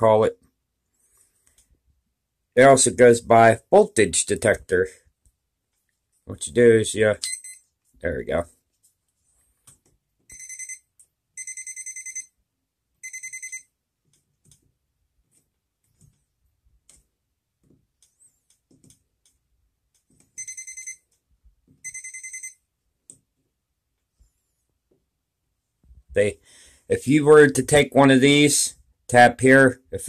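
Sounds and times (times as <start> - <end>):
voltage detector pen beeping: 7.2 - 7.6, 10.3 - 10.8, 13.0 - 13.7, 20.4 - 21.0, 21.8 - 22.6.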